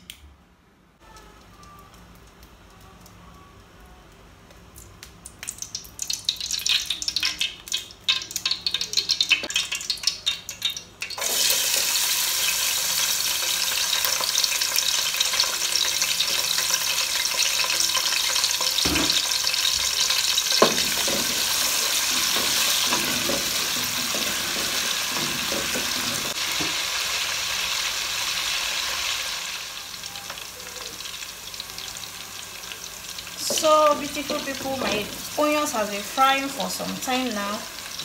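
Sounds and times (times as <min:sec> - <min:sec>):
oil crackling and popping: 0:04.1 - 0:31.6
onions sizzling in oil: 0:05.4 - 0:38.0
wooden spoon knocking on pot: 0:20.6 - 0:26.8.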